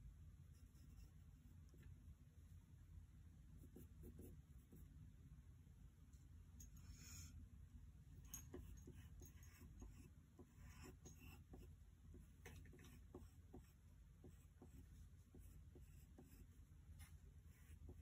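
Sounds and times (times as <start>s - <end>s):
low steady hum: 0.0s - 18.0s
pencil scratching on paper: 0.6s - 1.2s, 3.6s - 4.8s, 8.5s - 18.0s.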